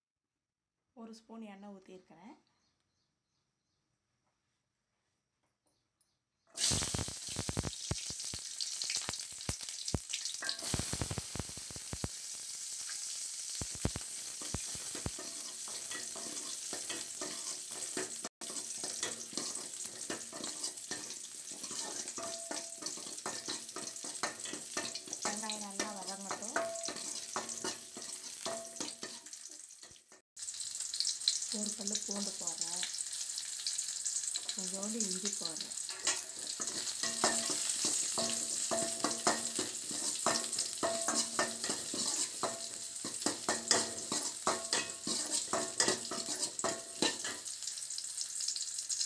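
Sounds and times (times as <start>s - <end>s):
onions sizzling in hot oil: 6.5s - 49.0s.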